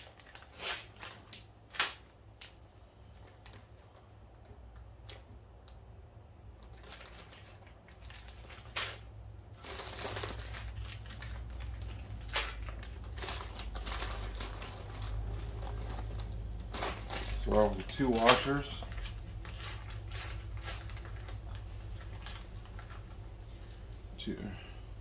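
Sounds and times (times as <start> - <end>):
rustling: 6.6 - 24.1.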